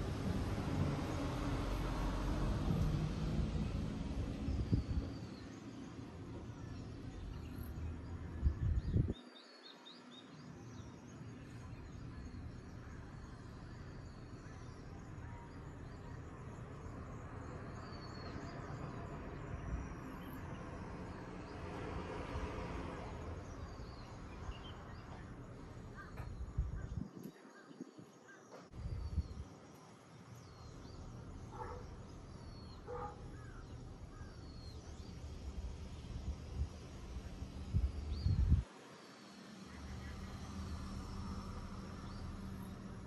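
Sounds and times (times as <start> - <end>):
wind rumbling on microphone: 0.0 - 5.5, 7.1 - 9.2, 22.2 - 29.6, 32.9 - 38.7
steady outdoor hiss: 0.0 - 43.0
small birds chirping: 23.1 - 43.0.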